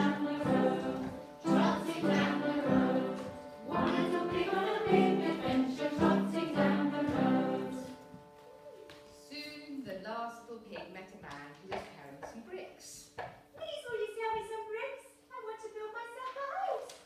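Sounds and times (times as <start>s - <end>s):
voices singing a tune: 0.0s - 8.8s.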